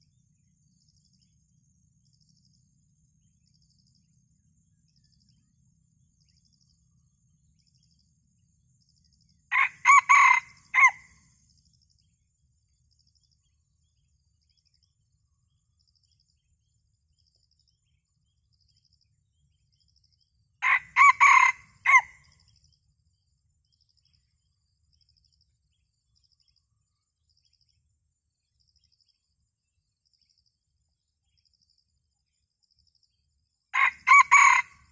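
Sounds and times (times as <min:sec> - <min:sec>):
rooster crowing: 0:09.5 - 0:11.1, 0:20.6 - 0:22.2, 0:33.8 - 0:34.9.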